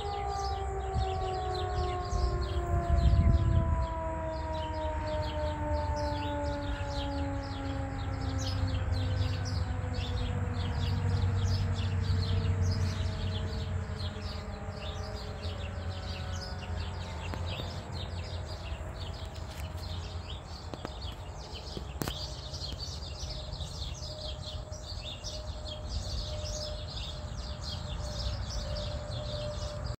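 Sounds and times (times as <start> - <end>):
birds chirping: 0.0 - 30.0
warning siren winding down: 0.0 - 30.0
steady low rumble: 2.0 - 3.8.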